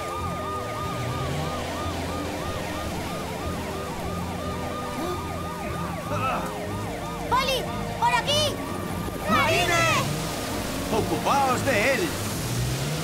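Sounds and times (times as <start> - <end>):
siren fast yelp: 0.0 - 8.6.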